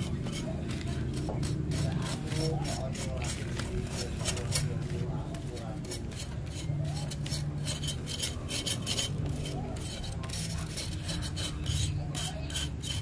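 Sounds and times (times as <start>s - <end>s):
scraping rasping strokes: 0.0s - 13.0s.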